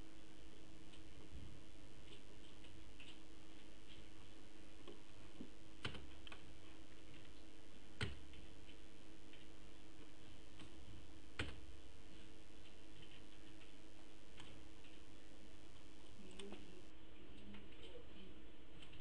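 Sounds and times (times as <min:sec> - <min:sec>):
low hum and hiss: 0:00.0 - 0:19.0
computer clicks: 0:05.8 - 0:06.4.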